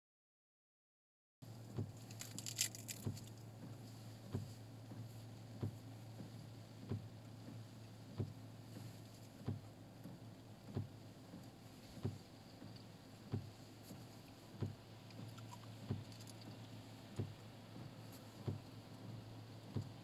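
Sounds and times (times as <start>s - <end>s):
low hum inside vehicle: 1.4s - 20.0s
short rustle: 1.5s - 6.6s, 7.5s - 9.6s, 11.3s - 18.8s
soft regular thump: 1.6s - 20.0s.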